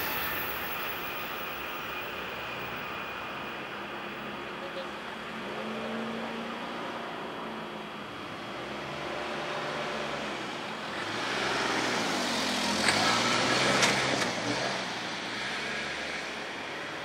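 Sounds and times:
steady traffic noise: 0.0s - 17.0s
vehicle passing by: 8.5s - 17.0s.

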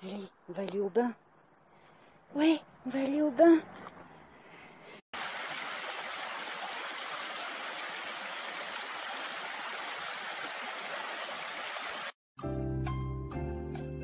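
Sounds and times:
stream rushing over stones: 5.2s - 12.2s.

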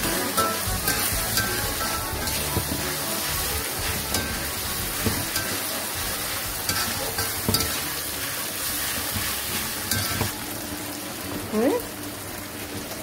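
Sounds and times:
vegetables sizzling in a wok: 0.0s - 13.0s
metal spatula scraping a pan: 0.1s - 10.3s.

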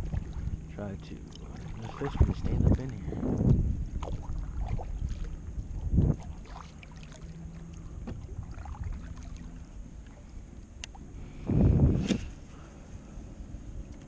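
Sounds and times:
low wind rumble: 0.0s - 14.0s
paddle stroke in water: 1.2s - 3.0s, 4.0s - 10.3s
fishing rod cast rush: 11.8s - 12.4s.

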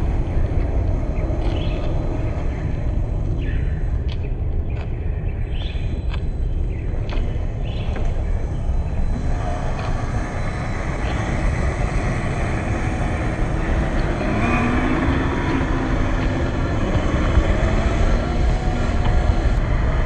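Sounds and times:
electric motor and gears whining: 0.0s - 20.0s
low rumble: 0.0s - 20.0s.

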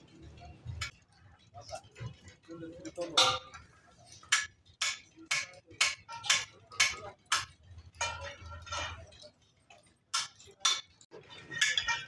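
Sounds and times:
rhythmic metallic taps: 3.0s - 9.1s
metal scraping on metal: 7.8s - 9.4s, 11.1s - 12.0s.

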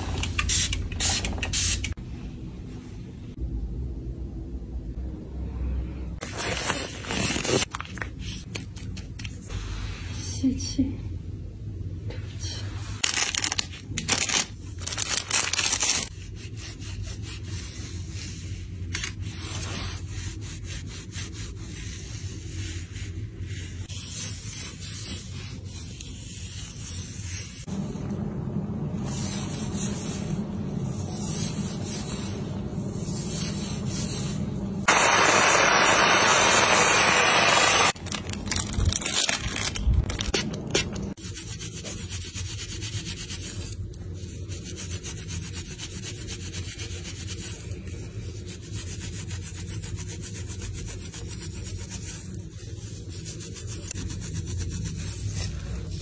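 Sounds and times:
loud even rush of noise: 34.9s - 38.0s.

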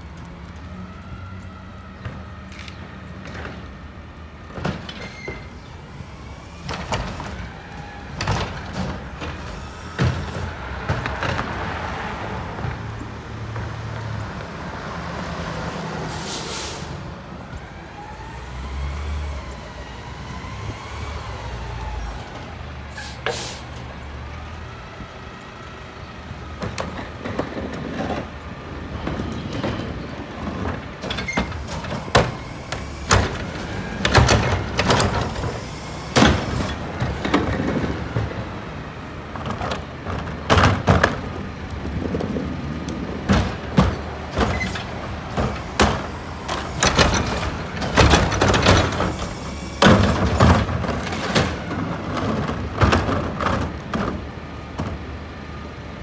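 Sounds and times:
trash carts banging and thudding: 4.4s - 5.9s, 6.6s - 14.6s, 26.2s - 55.7s
air brake hiss: 16.0s - 17.0s, 22.9s - 23.8s, 35.5s - 36.8s
garbage truck engine running: 28.9s - 56.0s.

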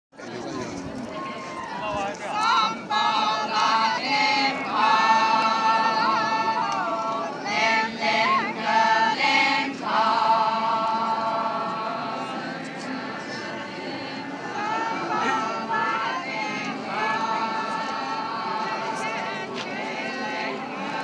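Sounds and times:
group singing in unison: 2.2s - 21.0s.

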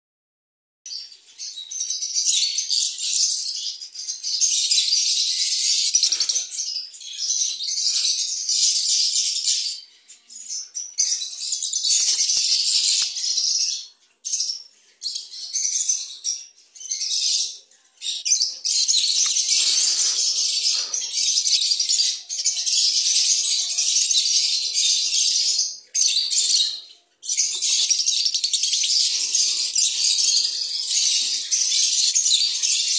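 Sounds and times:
lovebirds chattering shrilly: 11.8s - 13.7s, 18.1s - 32.9s.

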